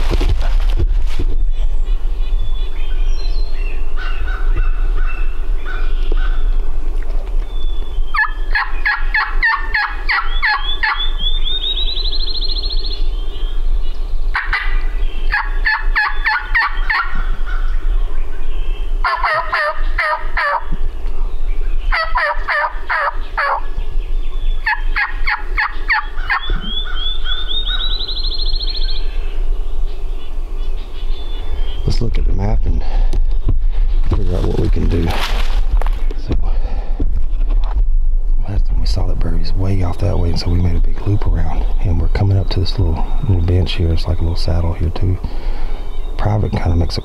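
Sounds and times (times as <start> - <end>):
turkey gobbling: 4.0 - 6.7, 8.1 - 11.8, 14.3 - 17.8, 19.0 - 20.8, 21.9 - 23.7, 24.4 - 29.2.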